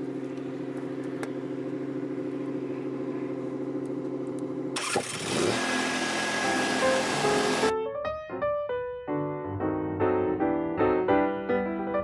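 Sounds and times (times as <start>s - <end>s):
generator running: 0.0s - 7.7s
background music: 6.4s - 12.0s.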